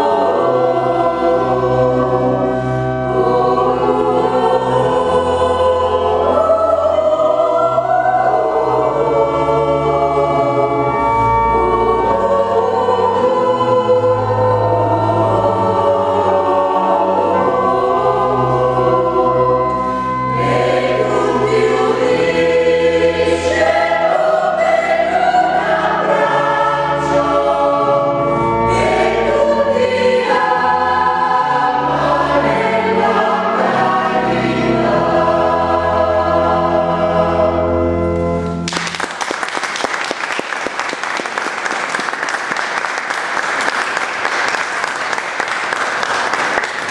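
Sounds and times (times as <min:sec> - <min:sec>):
mixed choir singing: 0:00.0 - 0:38.2
audience applauding: 0:38.7 - 0:46.9.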